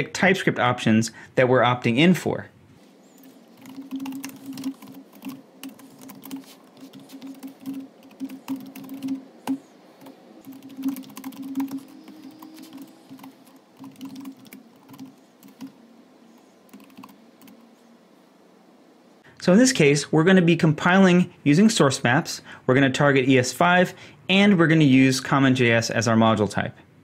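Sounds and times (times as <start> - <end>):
computer keyboard typing: 3.2 - 15.8, 16.7 - 17.7.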